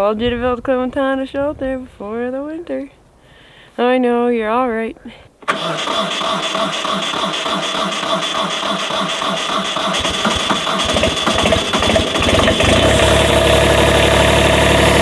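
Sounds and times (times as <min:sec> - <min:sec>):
diesel engine starting and idling: 0:05.4 - 0:15.0.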